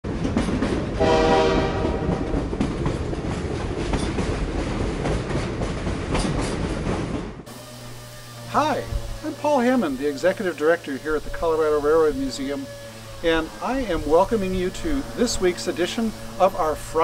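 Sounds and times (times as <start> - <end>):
train rumbling over rails: 0.0 - 17.0
rail joint clacks: 0.1 - 7.5
train horn blast: 1.0 - 2.4, 7.5 - 17.0.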